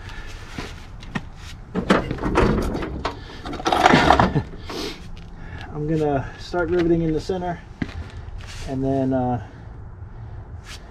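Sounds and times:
scraping and rustling: 7.9s - 8.8s.

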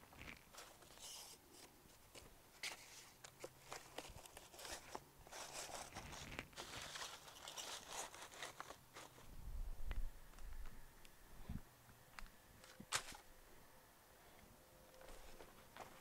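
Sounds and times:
cardboard crackling and scraping: 0.1s - 9.3s.

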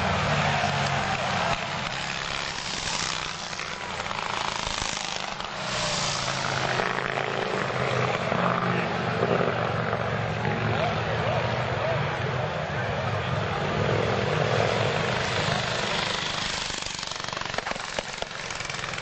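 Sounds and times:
motorcycles passing by: 0.0s - 19.0s.

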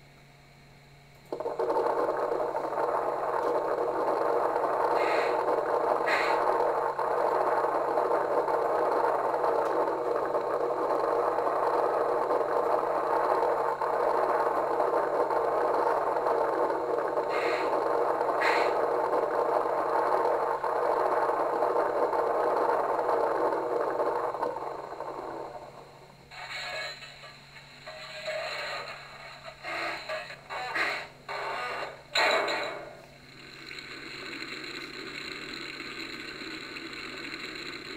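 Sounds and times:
steam hiss from small speaker: 1.8s - 24.2s.

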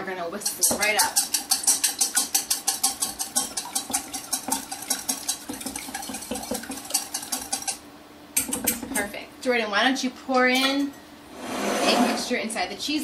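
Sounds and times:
whisk clicking against bowl: 0.4s - 7.8s, 8.4s - 9.1s.

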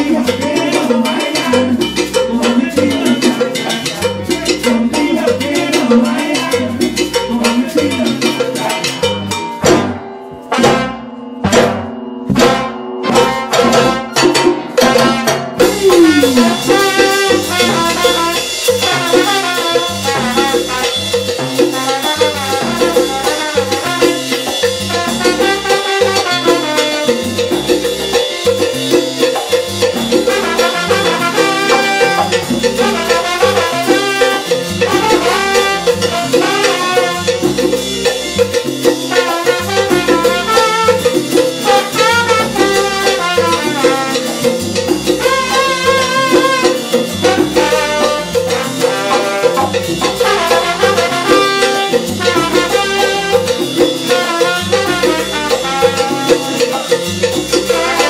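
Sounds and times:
salsa band playing: 0.0s - 58.0s
sharp percussion hits: 0.0s - 58.0s
sustained horns: 9.8s - 20.9s, 45.2s - 53.6s.

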